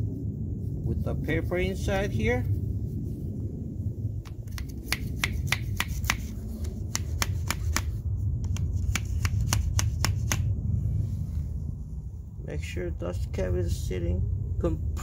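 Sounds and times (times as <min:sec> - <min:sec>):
hammer tapping on plastic tube: 0:04.5 - 0:06.2, 0:06.9 - 0:10.5.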